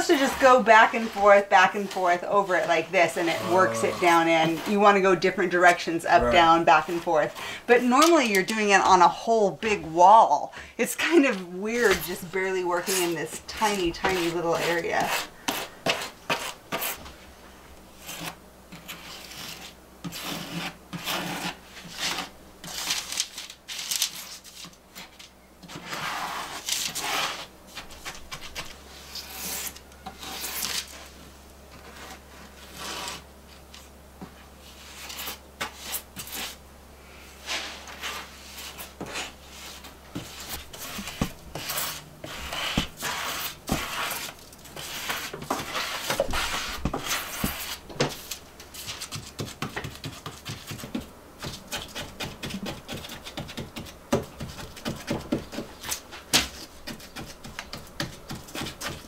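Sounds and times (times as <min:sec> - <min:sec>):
rubber float scraping tiles: 0:00.0 - 0:09.0, 0:10.8 - 0:17.1, 0:18.0 - 0:31.1, 0:31.7 - 0:36.6, 0:37.4 - 0:51.0
faint low hum: 0:00.0 - 0:58.5.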